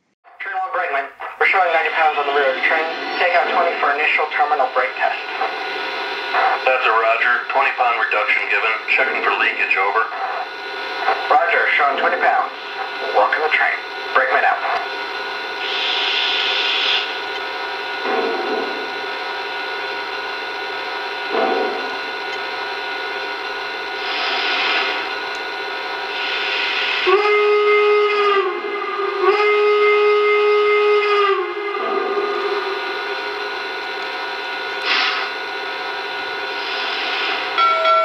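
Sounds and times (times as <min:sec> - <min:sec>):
model train steam hiss: 0:15.6 - 0:17.2, 0:24.0 - 0:25.1, 0:26.1 - 0:27.3, 0:34.8 - 0:35.4, 0:36.5 - 0:37.6
steam whistle blasts: 0:15.6 - 0:17.2, 0:26.1 - 0:33.2.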